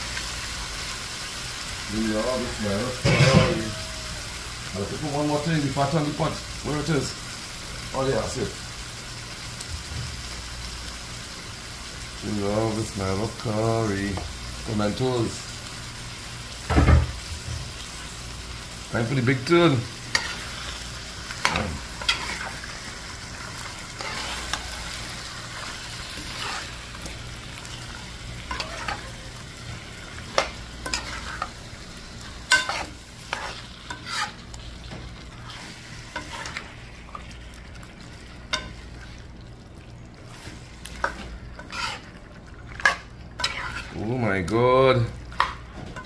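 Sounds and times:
curry sizzling in a metal pot: 0.0s - 46.0s
metal spoon scraping a pot: 24.0s - 24.6s, 26.2s - 26.7s, 30.4s - 31.5s, 32.5s - 34.4s, 41.0s - 42.1s, 42.8s - 44.0s.

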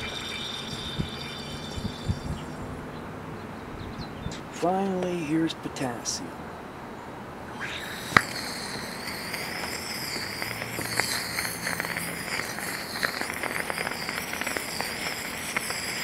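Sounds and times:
rapid crackles and pops: 0.0s - 2.6s, 7.9s - 16.0s
sizzling hiss: 0.0s - 2.7s, 7.5s - 16.0s.

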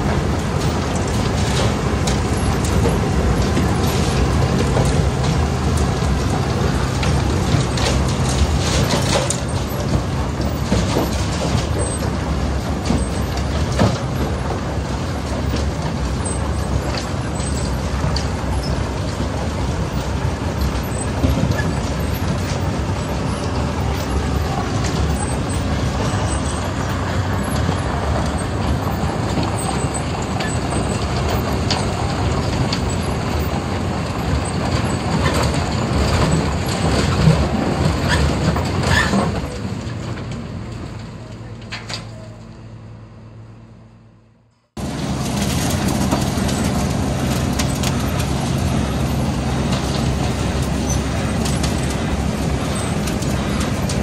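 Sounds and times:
drum grinding asphalt: 0.0s - 41.9s, 44.7s - 54.0s.

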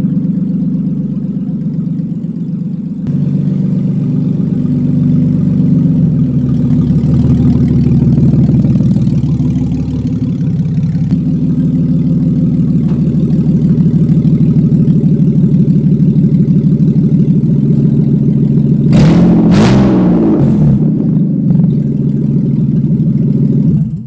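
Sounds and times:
car engine idling and revving: 0.0s - 24.0s.

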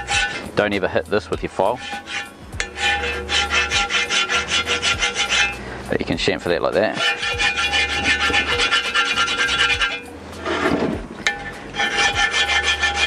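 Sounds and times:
hand file scraping metal: 0.0s - 5.6s, 6.7s - 13.0s
ringing metal note: 1.6s - 5.6s, 7.0s - 13.0s.

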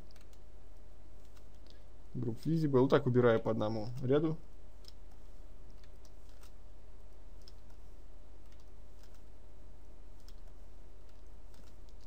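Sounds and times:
steady low hum: 0.0s - 12.0s
mouse and keyboard clicks: 4.8s - 6.6s, 7.4s - 7.8s, 8.4s - 9.3s, 10.2s - 12.0s.

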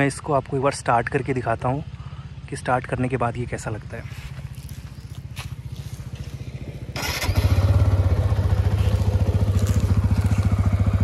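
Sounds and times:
motorcycle engine starting and idling: 0.2s - 11.0s.

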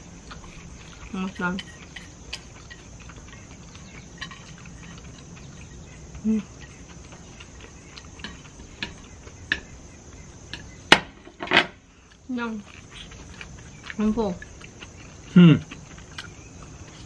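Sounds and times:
insects chorus: 0.0s - 17.0s
person humming mm: 15.3s - 15.7s.

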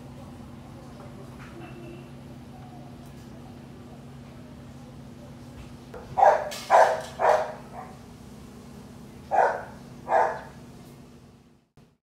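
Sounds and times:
dog barking: 6.1s - 8.0s, 9.3s - 10.6s.

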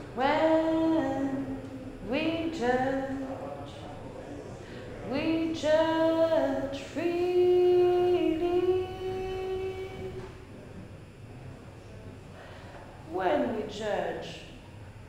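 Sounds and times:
woman singing unaccompanied: 0.1s - 3.3s, 5.1s - 10.2s.

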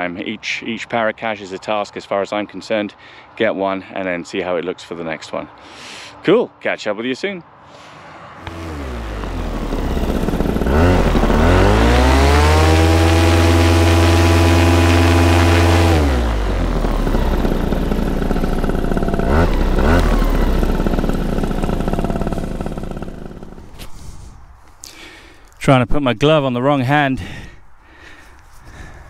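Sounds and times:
paramotor engine revving: 8.4s - 24.0s.

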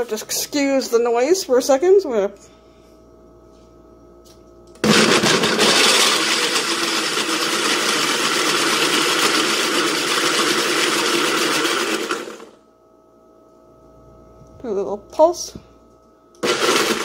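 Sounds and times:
blender switch: 4.8s - 12.5s, 16.4s - 17.0s
blender motor running: 4.8s - 12.6s, 16.4s - 17.0s.

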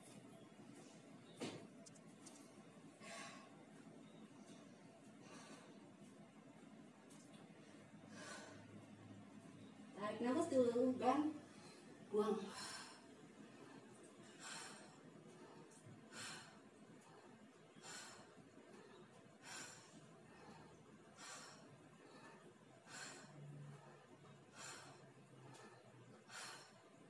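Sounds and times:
woman exhaling rhythmically: 8.0s - 9.1s, 11.3s - 27.0s.

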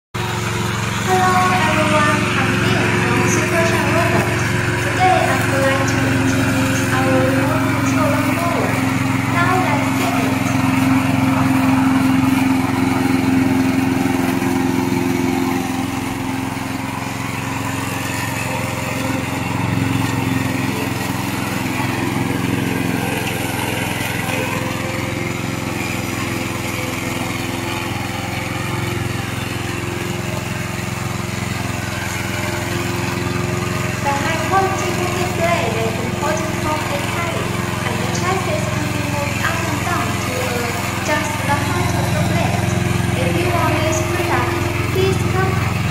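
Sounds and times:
lawn mower engine running: 0.1s - 45.9s.

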